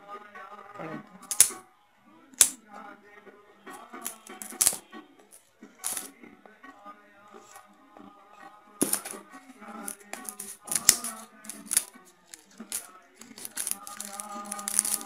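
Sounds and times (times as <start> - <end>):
background music with held notes: 0.0 - 15.0
plastic wrap crinkling: 9.9 - 15.0.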